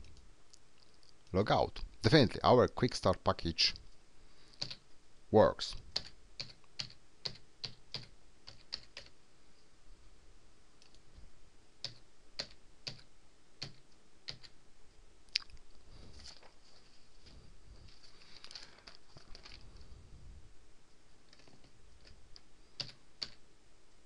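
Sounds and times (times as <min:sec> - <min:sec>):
computer keyboard keystrokes: 0:04.6 - 0:04.8, 0:05.9 - 0:09.1, 0:11.8 - 0:14.6, 0:22.8 - 0:23.4.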